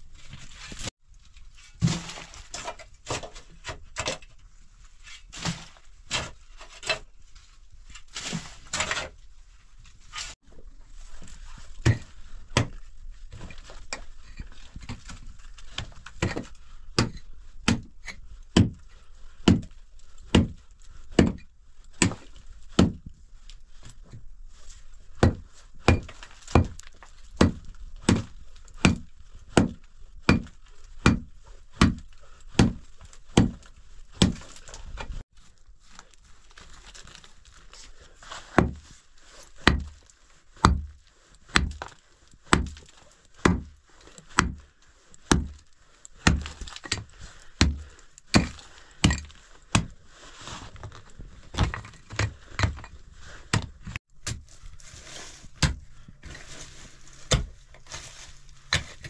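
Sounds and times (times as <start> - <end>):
pickaxe striking stony ground: 11.8 - 14.0, 14.8 - 18.8, 19.4 - 19.7, 20.3 - 21.4, 22.0 - 23.1, 25.2 - 35.2, 38.5 - 38.8, 39.6 - 40.0, 40.6 - 44.7, 45.3 - 45.6, 46.2 - 50.0, 51.5 - 52.9, 53.5 - 54.5, 55.6 - 55.8, 57.2 - 57.6, 58.7 - 59.0.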